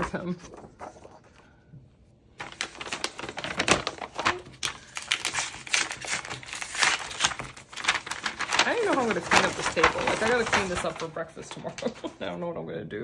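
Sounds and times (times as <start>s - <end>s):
packaging crinkling and clicking: 2.4s - 12.0s.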